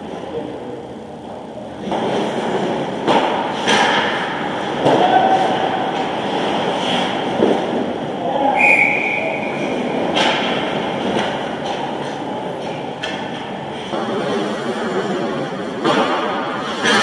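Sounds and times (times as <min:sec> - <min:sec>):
ice skates and hockey sticks: 0:01.2 - 0:17.0
referee's whistle blast: 0:08.6 - 0:09.4.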